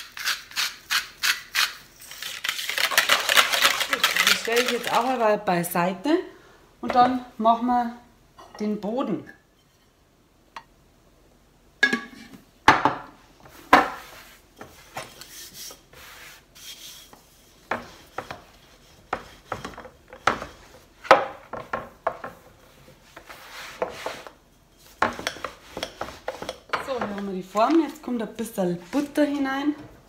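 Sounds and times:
rolling pin rubbing and knocking: 17.7 - 20.7.

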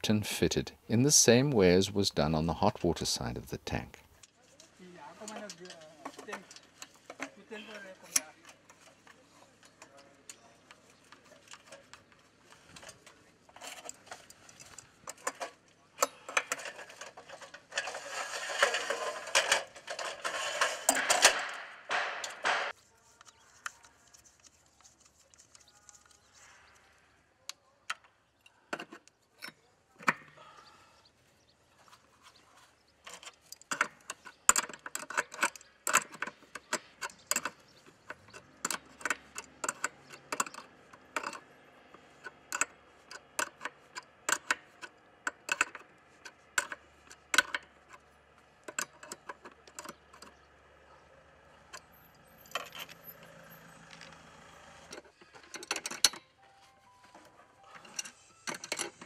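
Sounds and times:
metallic clicks of wrench on pipe fittings: 33.2 - 41.4, 42.2 - 48.0, 54.9 - 56.3.

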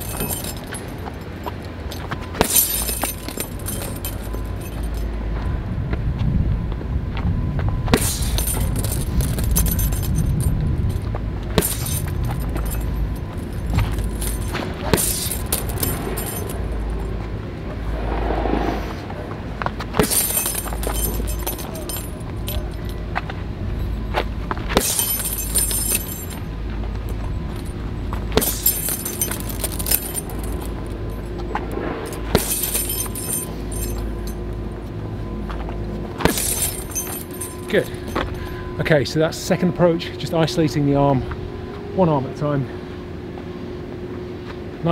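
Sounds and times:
chain jangling: 0.0 - 5.1, 8.0 - 17.1, 20.0 - 23.0, 24.8 - 34.5, 36.2 - 38.6
punches hitting heavy bag: 2.4 - 4.2, 11.6 - 12.8, 13.7 - 16.5, 20.0 - 21.9, 24.7 - 26.4, 28.3 - 30.6, 32.3 - 34.0, 36.2 - 37.6
low rumble: 2.5 - 38.8.

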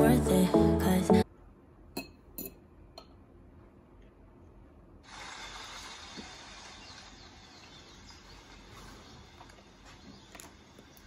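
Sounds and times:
birds: 6.4 - 11.0.

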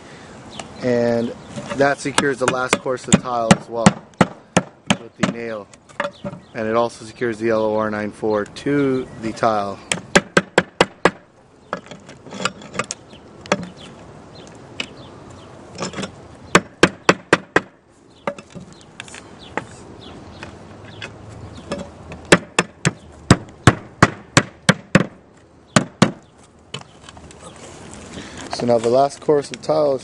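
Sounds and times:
hammer striking nails: 2.2 - 5.4, 9.9 - 11.2, 16.5 - 18.5, 21.7 - 25.2, 25.8 - 26.2.

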